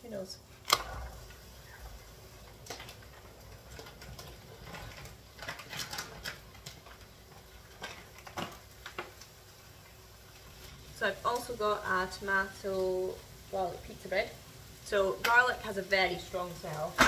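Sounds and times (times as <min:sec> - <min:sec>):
plastic packet crinkling: 0:02.5 - 0:09.3.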